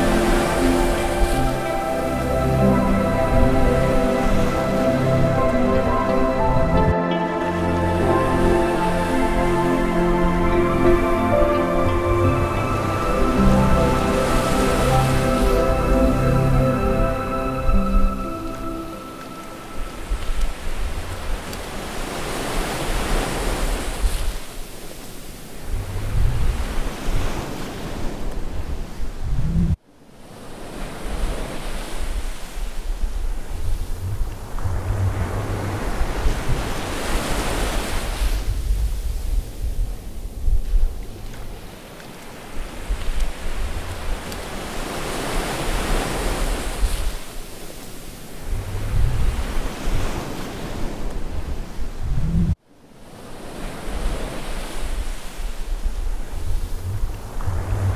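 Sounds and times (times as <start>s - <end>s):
ocean waves washing in: 0.0s - 57.9s
wind buffeting microphone: 25.6s - 29.8s, 32.0s - 52.6s, 53.9s - 57.9s.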